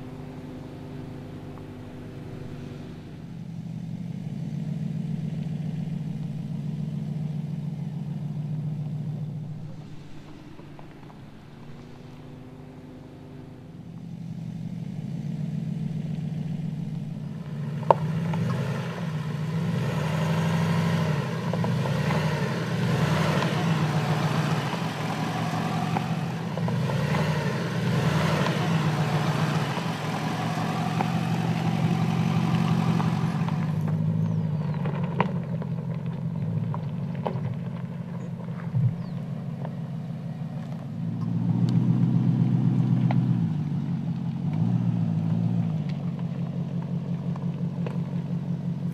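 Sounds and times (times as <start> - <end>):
engine running at low revs: 0.0 - 48.9
tyres on gravel: 0.0 - 48.9.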